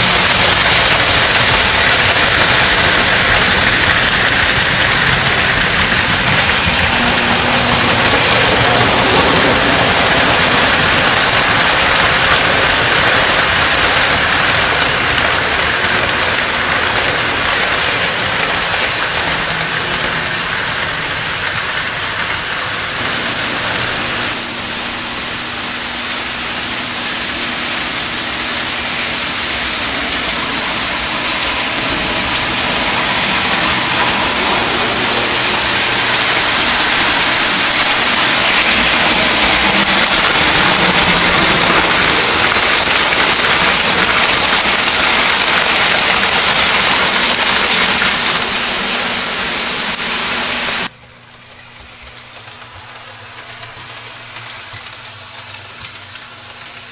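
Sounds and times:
toy train wheels rolling on rail: 0.0s - 56.9s.

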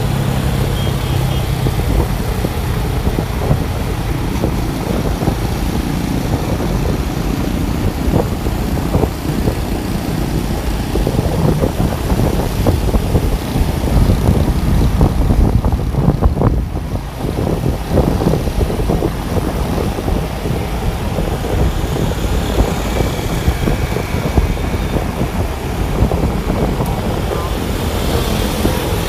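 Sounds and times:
road and traffic noise: 0.0s - 29.0s
wind buffeting microphone: 0.0s - 29.0s.

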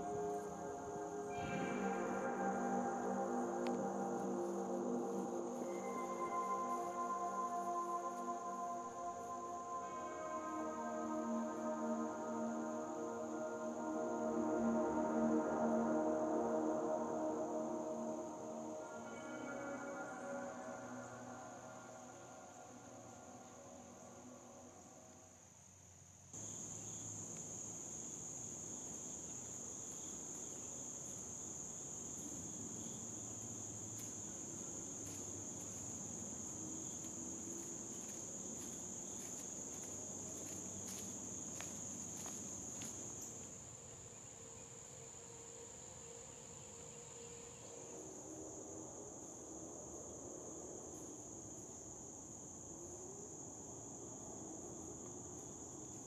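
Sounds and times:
insects chorus: 0.0s - 56.0s
footsteps on dry leaves: 33.4s - 43.5s.

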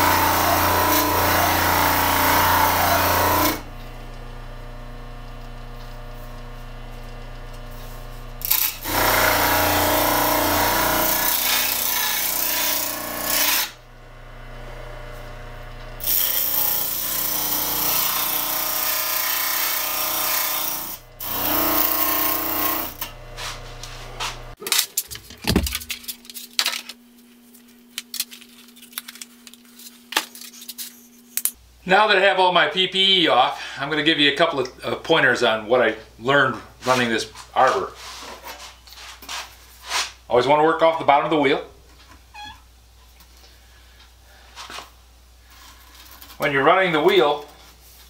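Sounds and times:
electric motor humming: 0.0s - 24.6s
clicks and handling knocks: 24.6s - 27.0s.

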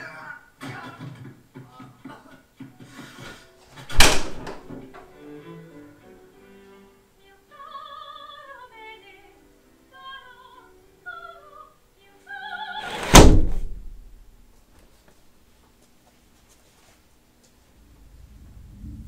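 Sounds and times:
operatic singing from television: 0.0s - 3.3s, 5.0s - 13.2s.

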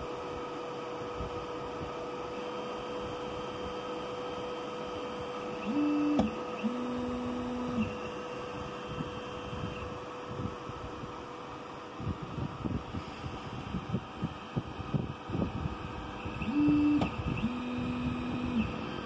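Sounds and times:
printer fan hum: 0.0s - 19.0s
stepper motor whine: 0.0s - 19.0s
motor click: 5.6s - 8.1s, 16.3s - 18.8s.

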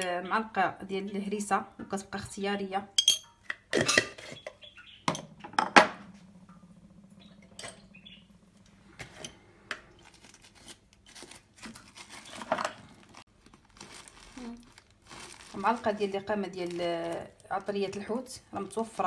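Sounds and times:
spoon clinking on dishes: 3.0s - 3.4s.

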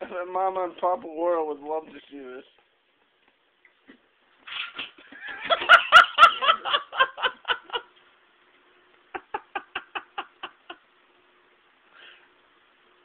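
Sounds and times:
hearty laughter: 5.0s - 8.0s, 9.1s - 10.8s.

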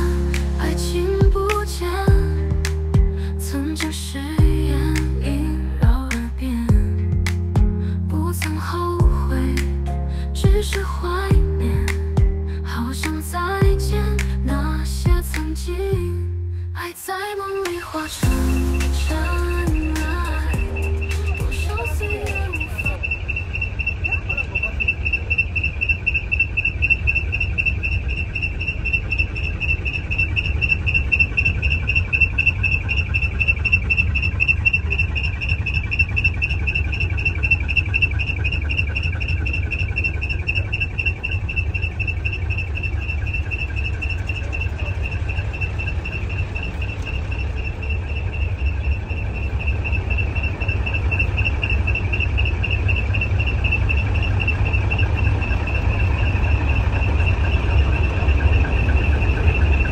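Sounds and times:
continuous low rumble: 0.0s - 59.9s
insects trilling: 18.5s - 59.9s.

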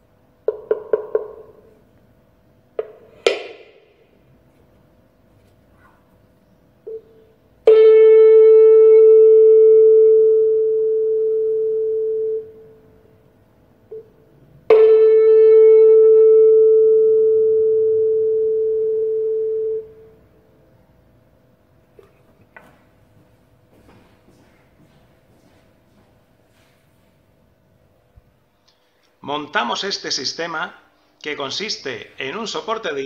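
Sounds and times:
tuning fork ringing pure tone: 6.8s - 13.1s, 13.9s - 20.4s.

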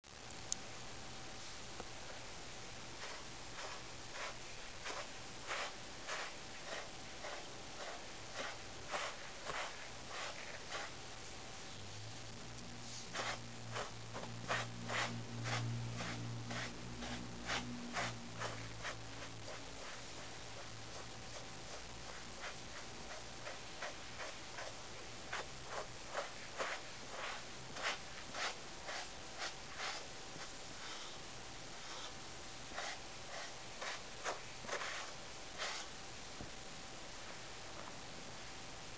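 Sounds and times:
brush swishing through fur: 3.0s - 11.3s, 12.8s - 31.2s, 32.7s - 35.9s.

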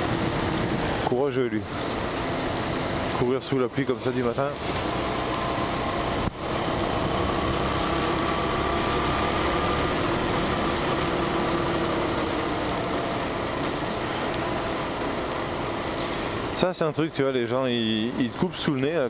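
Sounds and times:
tyre spray on wet road: 0.0s - 18.9s
motorcycle engine drone: 0.0s - 19.0s
wind: 0.0s - 19.0s.

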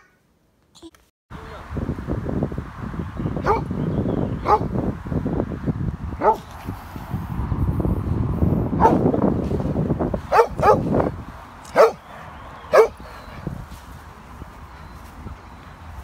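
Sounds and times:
dog barking: 3.4s - 3.7s, 4.4s - 4.7s, 6.2s - 6.5s, 8.8s - 9.0s, 10.3s - 10.9s, 11.7s - 12.0s, 12.7s - 13.0s.

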